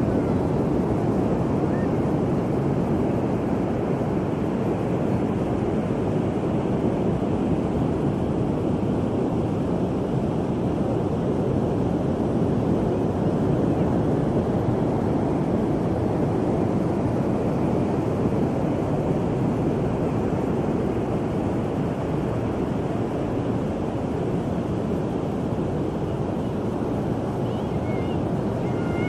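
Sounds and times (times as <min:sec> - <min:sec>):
wind on microphone: 0:00.0 - 0:29.0
ocean surf breaking: 0:09.8 - 0:29.0.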